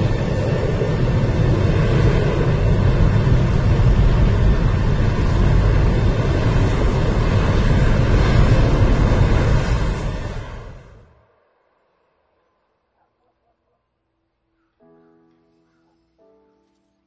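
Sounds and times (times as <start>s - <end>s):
tornado wind roar: 0.0s - 11.5s.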